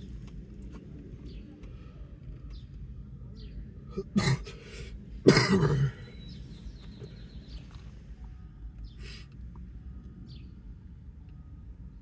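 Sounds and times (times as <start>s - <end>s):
person coughing: 4.0s - 4.6s, 5.2s - 6.0s.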